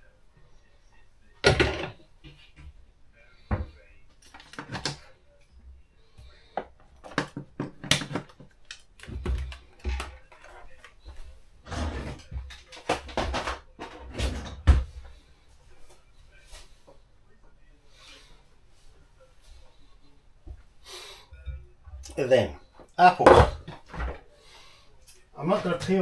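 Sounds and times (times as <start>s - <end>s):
kitchen items knocking and clattering: 1.4s - 2.7s, 6.6s - 10.6s, 11.6s - 15.0s, 21.4s - 24.2s.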